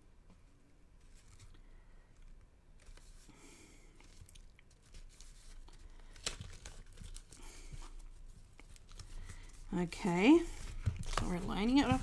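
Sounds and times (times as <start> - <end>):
cardstock rustling and sliding: 4.0 - 12.0.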